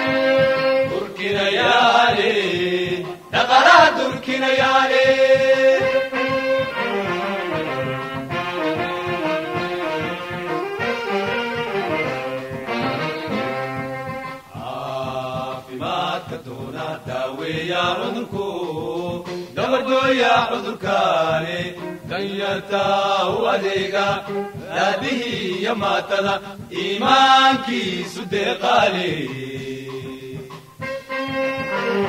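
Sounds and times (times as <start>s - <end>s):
chanted vocal line: 0.0s - 30.8s
background music: 0.0s - 32.0s.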